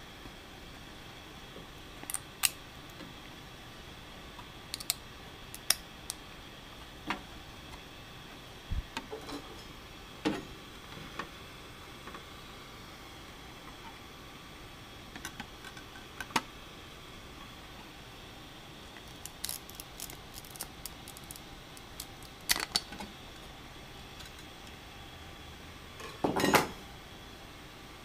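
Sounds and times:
steady hiss: 0.0 - 28.0
plastic part clicking and cracking: 4.8 - 5.0.

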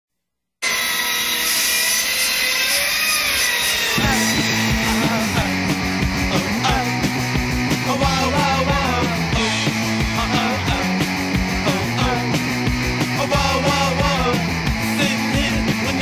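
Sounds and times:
chainsaw running: 0.6 - 16.0
punk rock band playing: 4.0 - 16.0.

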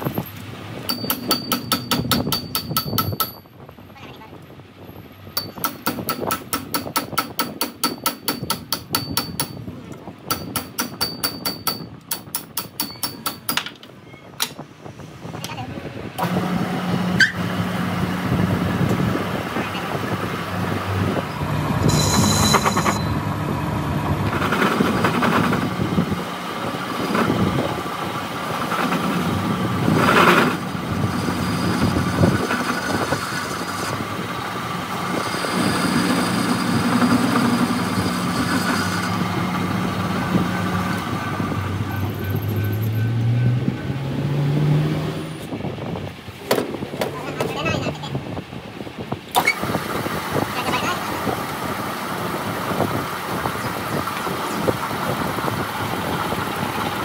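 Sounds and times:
metal lathe humming: 20.3 - 25.8, 34.6 - 41.5.

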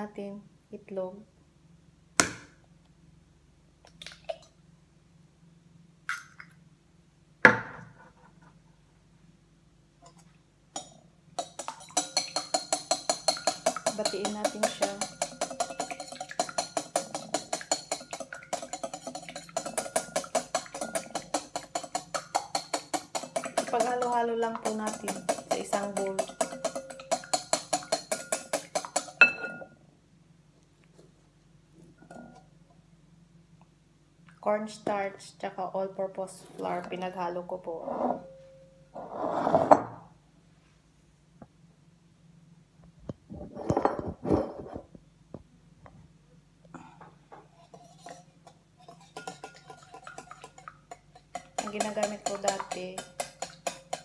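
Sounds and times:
utensil clinking against glass bowl: 10.8 - 29.7, 47.7 - 54.0.

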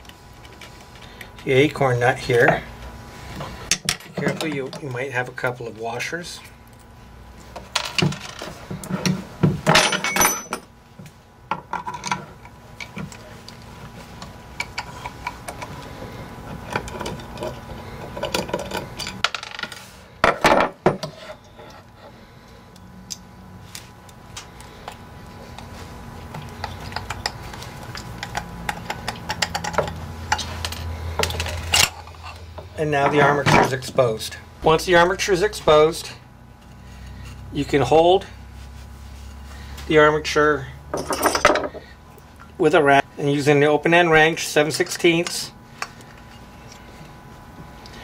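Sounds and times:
metal parts clattering: 9.7 - 10.7, 41.0 - 41.7
small metal parts clinking: 9.7 - 10.7, 40.9 - 41.7.

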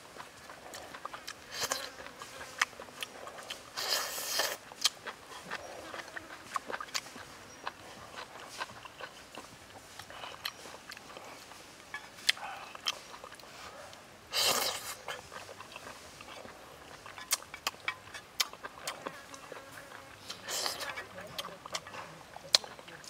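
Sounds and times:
person chewing: 0.0 - 23.0
slurp: 2.6 - 6.2, 14.3 - 18.2.

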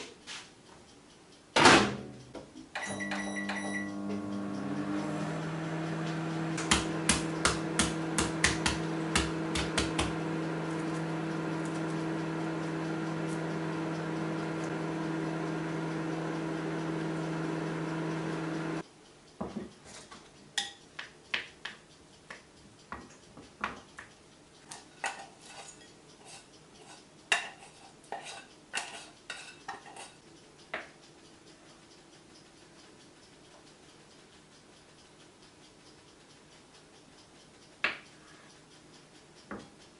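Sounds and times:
microwave oven humming: 1.8 - 18.8.

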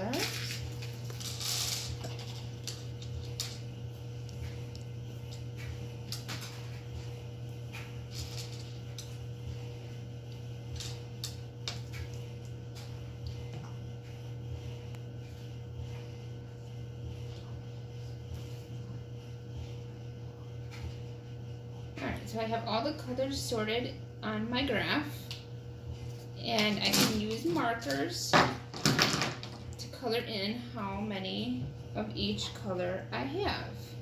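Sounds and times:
plastic bag crinkling: 0.0 - 3.6
steady low hum: 0.0 - 34.0.

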